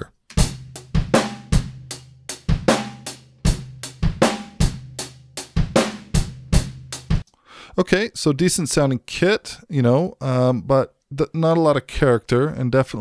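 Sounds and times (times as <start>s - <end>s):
acoustic drum kit beat: 0.3s - 7.2s.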